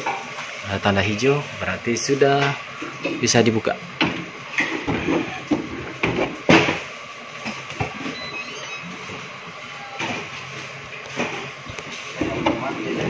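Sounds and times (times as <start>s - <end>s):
door mechanism whirring: 7.8s - 10.3s.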